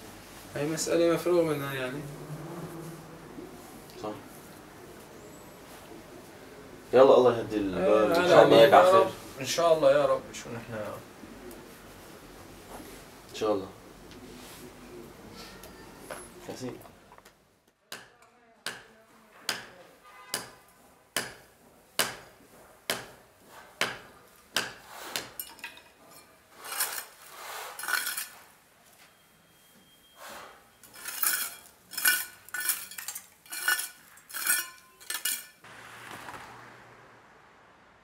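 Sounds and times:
trowel striking and scraping concrete: 23.0s - 28.5s, 30.8s - 35.7s
passing car hiss: 35.7s - 38.0s.

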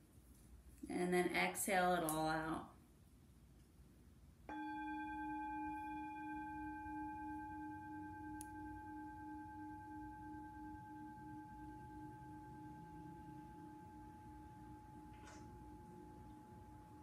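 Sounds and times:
singing bowl ringing: 4.5s - 17.0s.

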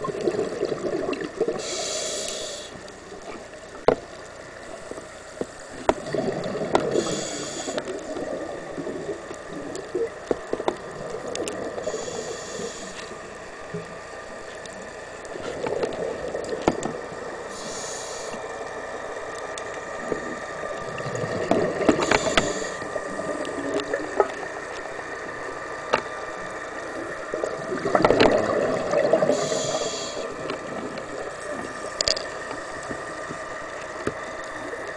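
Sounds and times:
exhaled bubbles gurgling: 0.0s - 3.8s, 5.7s - 34.9s
faint steady tone: 0.0s - 34.9s
regulator inhale hiss: 1.5s - 3.0s, 6.8s - 8.1s, 11.7s - 13.4s, 17.4s - 18.7s, 21.8s - 23.4s, 29.1s - 30.6s
small clicks: 18.2s - 19.8s, 31.9s - 34.9s.

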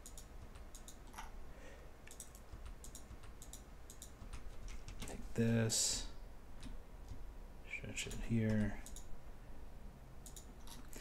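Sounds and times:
computer mouse clicking: 0.0s - 1.3s, 2.0s - 5.2s, 8.0s - 9.1s, 10.2s - 11.0s
low steady hum: 0.0s - 11.0s.

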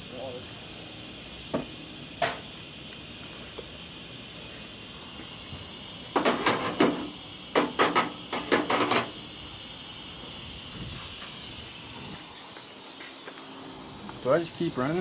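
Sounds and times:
steady background hiss: 0.0s - 15.0s
sharp clicks and knocks: 6.1s - 9.1s.

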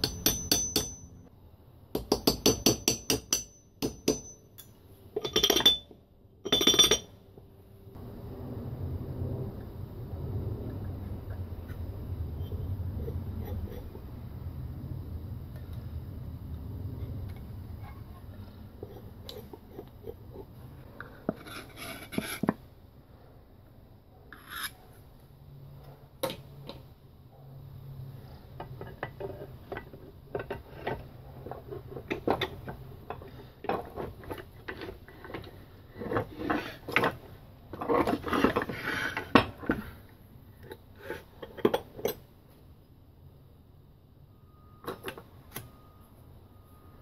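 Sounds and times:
metal parts clinking and scraping: 4.2s - 7.2s.

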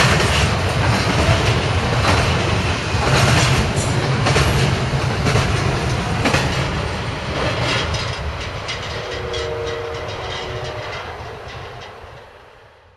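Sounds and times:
train wheels clicking over rail joints: 0.0s - 12.3s
freight cars rumbling: 0.0s - 12.9s
distant train horn: 8.9s - 11.9s.

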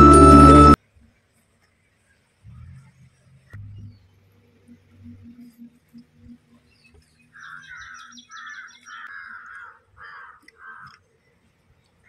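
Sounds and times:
crow cawing: 7.4s - 11.0s.

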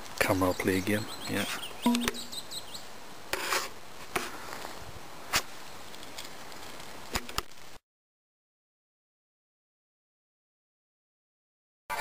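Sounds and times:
sharp clicks and taps: 1.8s - 2.3s.

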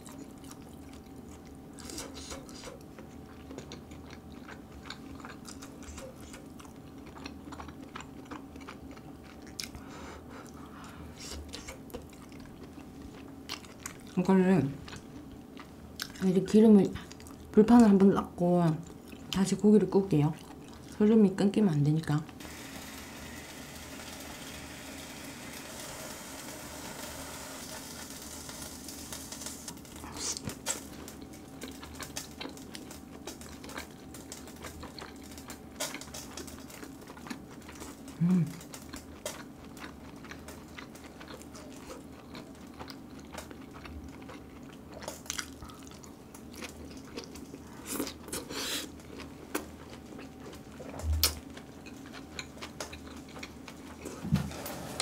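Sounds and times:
chewing and eating: 0.0s - 21.4s, 27.9s - 54.3s
faint sizzle: 22.4s - 31.7s.

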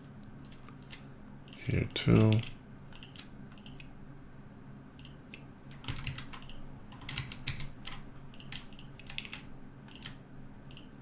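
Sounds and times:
faint low hum: 0.0s - 11.0s
keyboard keys clicking: 5.0s - 10.9s.

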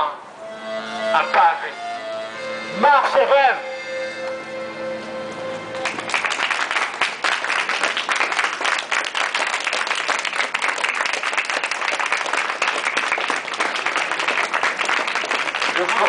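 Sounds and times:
music: 0.4s - 6.3s
crowd applauding: 5.7s - 16.0s.

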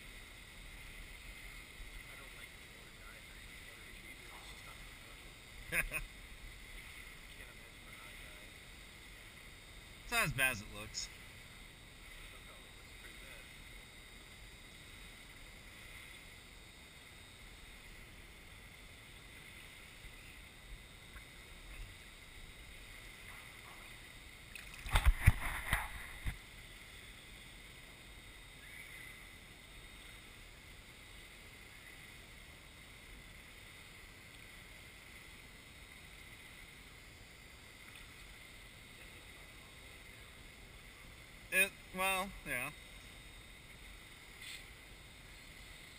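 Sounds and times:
indoor pool hall hiss: 0.0s - 45.9s
water splashes: 22.9s - 26.4s.

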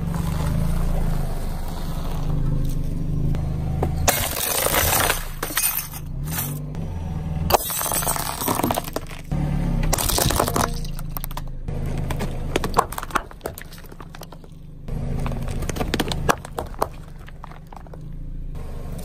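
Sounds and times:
car engine running: 0.0s - 19.0s
glass and plastic cracking: 7.5s - 9.3s, 9.9s - 11.4s.

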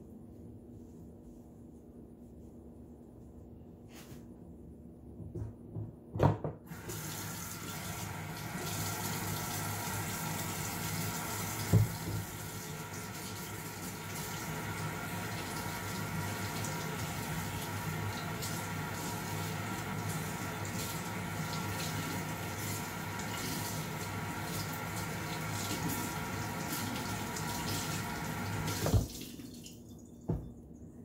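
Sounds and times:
faucet running into metal sink: 6.7s - 30.4s.

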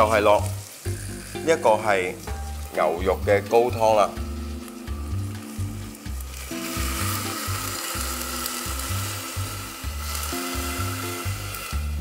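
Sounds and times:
background music with bass: 0.0s - 12.0s
liquid pouring into a pot: 6.0s - 12.0s.

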